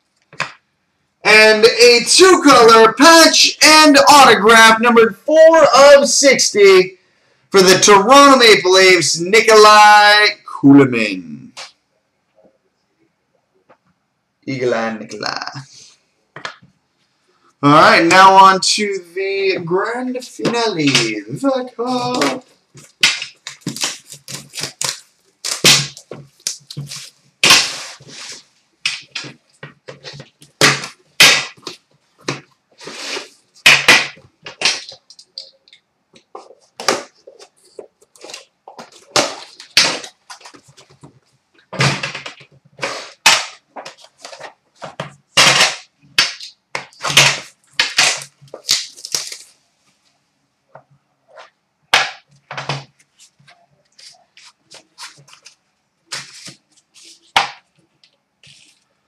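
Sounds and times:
plastic wrap crackling and tearing: 21.8 - 28.4, 45.5 - 49.6.

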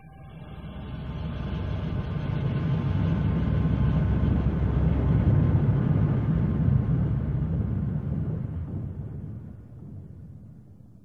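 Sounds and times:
wind: 0.0 - 11.0.

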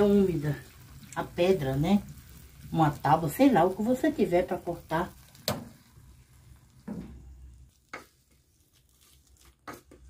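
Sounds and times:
thick paste scraped from pot: 7.8 - 10.0.

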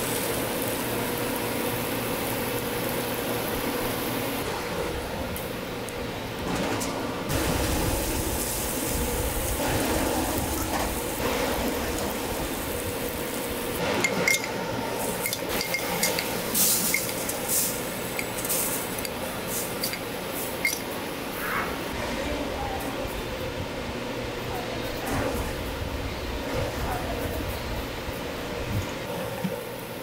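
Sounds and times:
food sizzling on griddle: 0.0 - 4.4, 7.3 - 14.2, 14.9 - 20.7
utensils clinking and tapping: 13.8 - 17.5, 18.1 - 20.9.

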